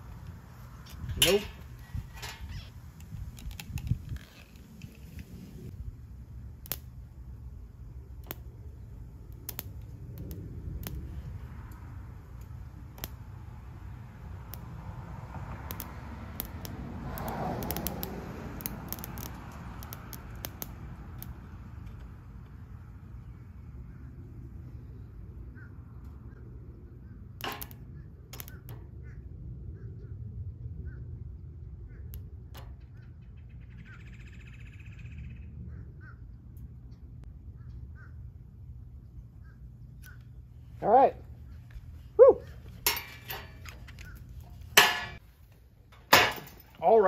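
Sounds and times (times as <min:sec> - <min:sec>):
low steady rumble: 0:00.0 - 0:47.0
welding rod sparking crackles: 0:06.5 - 0:07.2, 0:08.1 - 0:22.1, 0:27.4 - 0:28.8
rod tapping on steel plate: 0:42.8 - 0:43.6, 0:44.8 - 0:45.2.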